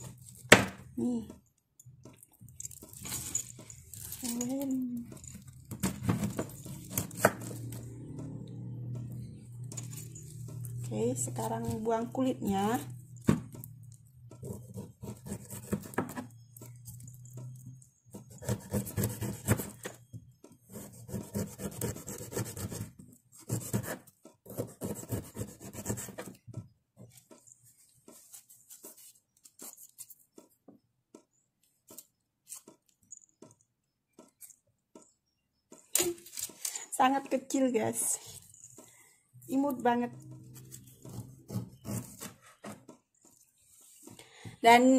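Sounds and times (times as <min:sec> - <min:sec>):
knife scraping pineapple skin: 0:14.4 - 0:16.2, 0:18.2 - 0:20.0, 0:40.5 - 0:42.5.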